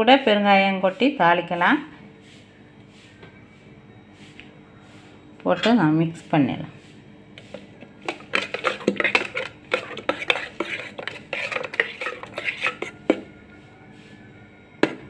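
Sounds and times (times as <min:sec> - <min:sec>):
metal spoon stirring in steel pot: 0:07.4 - 0:13.3.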